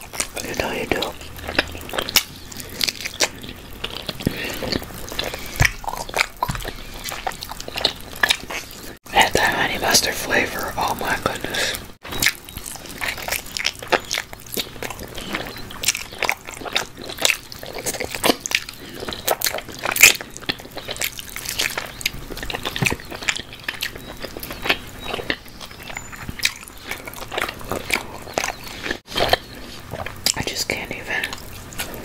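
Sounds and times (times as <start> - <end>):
person chewing food: 0.0 - 32.0.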